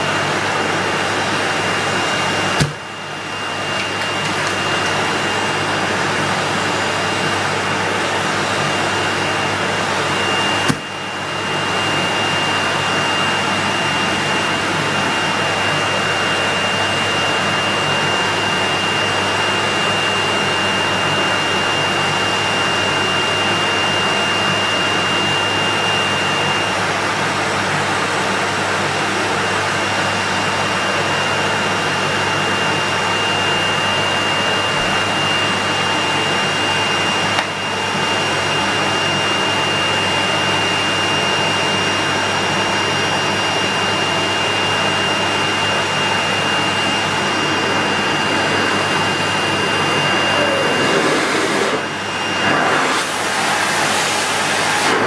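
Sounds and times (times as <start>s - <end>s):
vacuum cleaner motor whine: 0.0s - 55.0s.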